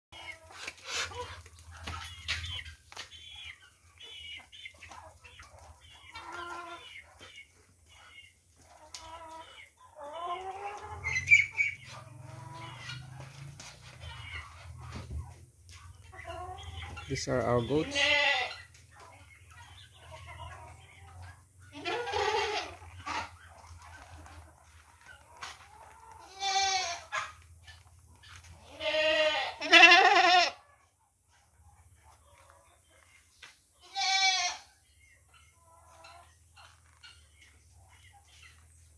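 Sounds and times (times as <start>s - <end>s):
chickens clucking: 0.1s - 38.9s
goat bleating: 17.8s - 18.6s, 21.7s - 22.8s, 26.2s - 27.1s, 28.6s - 30.6s, 33.8s - 34.7s.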